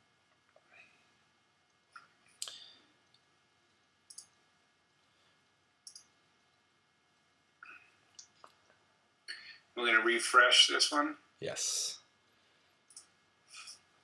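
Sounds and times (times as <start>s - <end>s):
computer mouse clicks: 4.1s - 4.4s, 5.8s - 6.1s, 12.9s - 13.8s.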